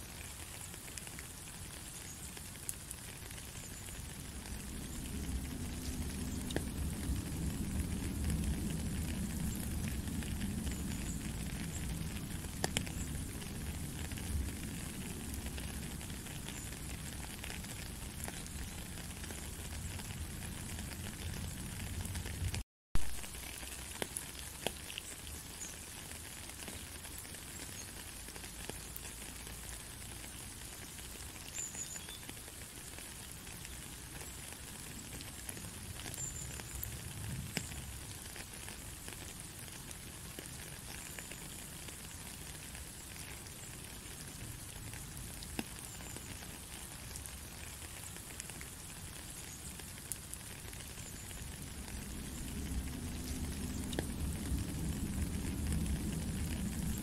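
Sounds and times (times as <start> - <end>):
steady rain falling: 0.0 - 57.0
low rumble: 4.2 - 15.8.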